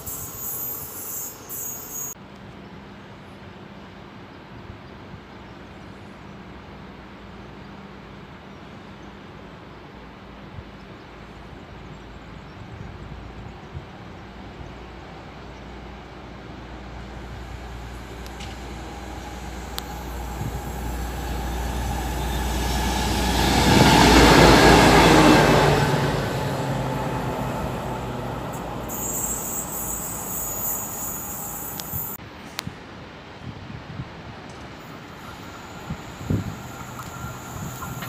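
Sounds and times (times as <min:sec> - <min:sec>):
high-pitched hiss: 0:00.0 - 0:02.2, 0:16.5 - 0:25.7, 0:27.3 - 0:32.2, 0:34.6 - 0:38.0
diesel locomotive engine drone: 0:00.0 - 0:04.6, 0:05.2 - 0:33.4, 0:34.4 - 0:38.0
rail noise: 0:00.0 - 0:38.0.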